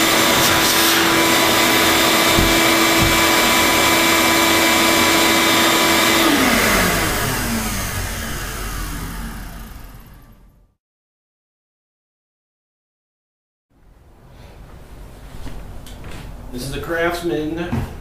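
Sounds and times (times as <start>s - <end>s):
shop vacuum motor whining: 0.0s - 10.6s.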